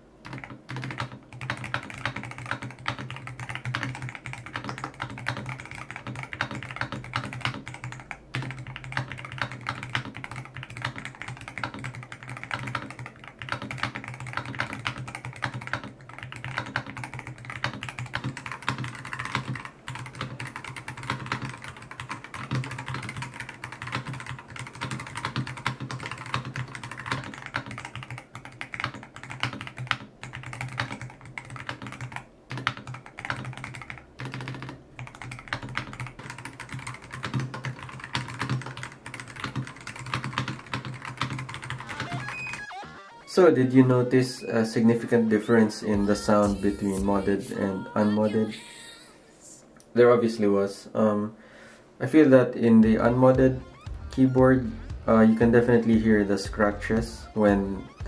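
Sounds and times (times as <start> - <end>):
fast mechanical keyboard typing: 0.2 - 42.7.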